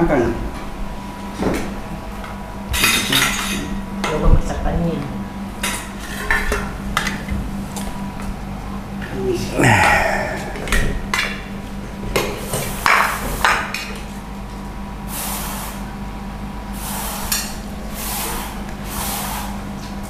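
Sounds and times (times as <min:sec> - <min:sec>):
steady low hum: 0:00.5 - 0:12.9.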